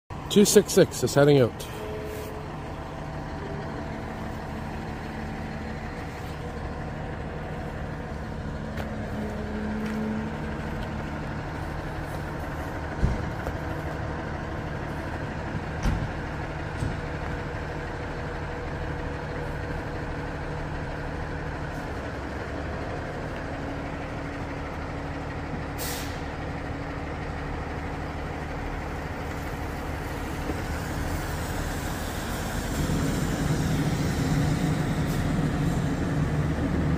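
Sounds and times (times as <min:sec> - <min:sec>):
diesel engine idling: 0:00.1 - 0:36.9
air brake hiss: 0:25.8 - 0:26.3.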